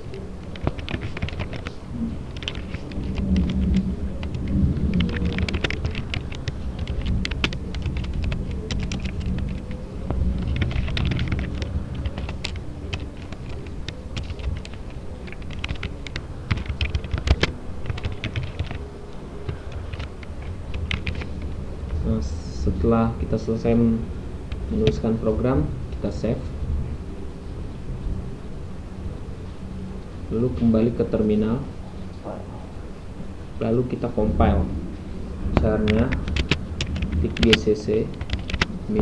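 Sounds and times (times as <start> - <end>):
computer keyboard typing: 0.0 - 22.2, 35.6 - 39.0
low rumble: 0.0 - 39.0.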